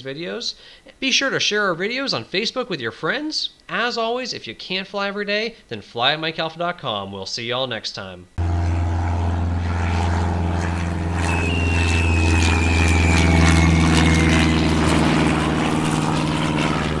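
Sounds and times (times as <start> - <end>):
propeller airplane engine droning: 8.4 - 17.0
thin whistle sliding down: 11.2 - 14.8.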